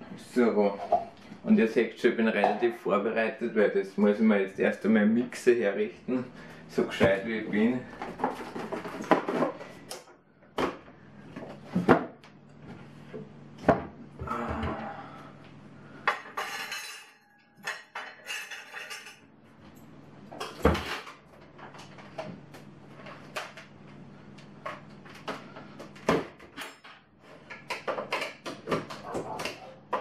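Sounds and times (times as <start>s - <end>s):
box and packaging rustling: 7.6s - 9.9s.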